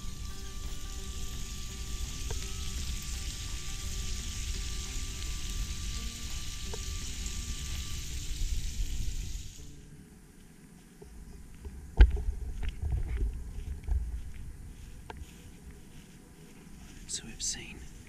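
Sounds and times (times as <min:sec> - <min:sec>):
seafood sizzling in a skillet: 0:00.0 - 0:09.8.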